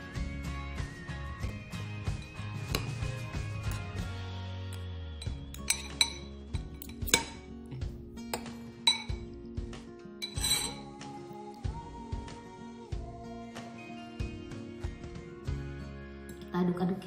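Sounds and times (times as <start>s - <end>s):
background music: 0.0s - 17.0s
metal cutlery clinking on ceramic bowl: 5.2s - 7.5s, 8.3s - 9.3s, 10.2s - 10.9s.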